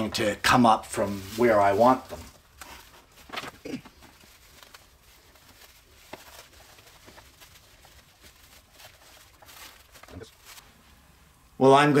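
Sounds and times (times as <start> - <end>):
plastic wrap crinkling: 0.0 - 11.0.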